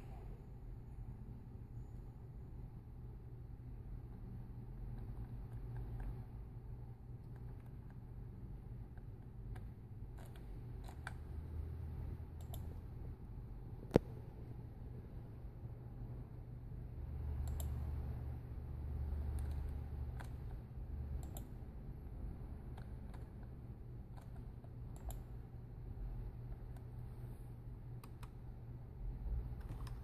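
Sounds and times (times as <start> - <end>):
low office hum: 0.0 - 30.0
computer mouse clicking: 4.8 - 6.4, 7.2 - 8.2, 8.8 - 12.8, 17.4 - 18.0, 19.2 - 21.7, 22.6 - 25.4, 26.4 - 27.1, 27.8 - 28.5, 29.5 - 30.0.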